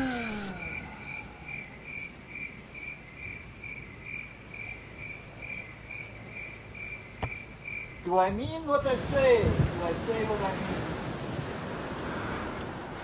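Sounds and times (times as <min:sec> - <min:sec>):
falling tone: 0:00.0 - 0:02.2
cricket chirping: 0:00.0 - 0:08.2.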